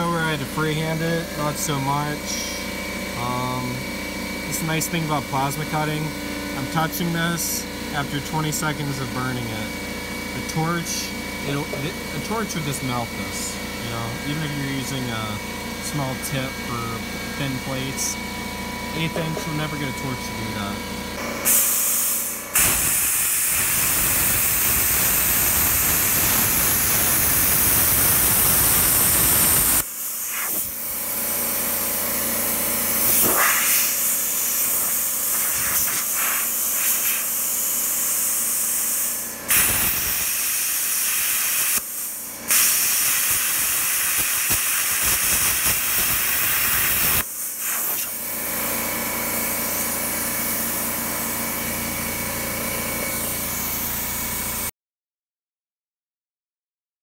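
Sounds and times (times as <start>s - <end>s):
plasma cutter hissing: 21.4s - 31.0s, 32.9s - 48.4s.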